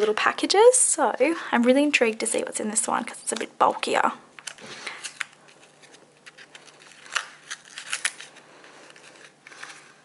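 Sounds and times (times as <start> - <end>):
paper wrapping crinkling: 4.4 - 10.0.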